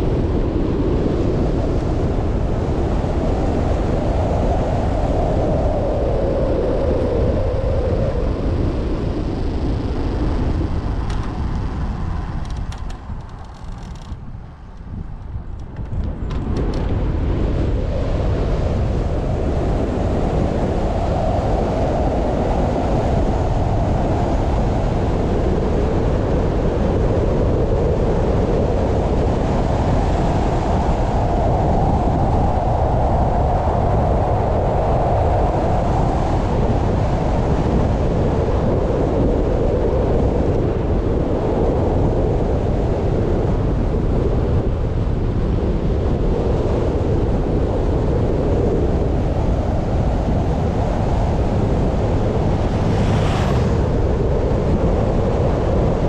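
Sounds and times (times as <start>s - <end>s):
wind rushing over microphone: 0.0s - 56.0s
tyre noise on asphalt: 10.7s - 17.0s.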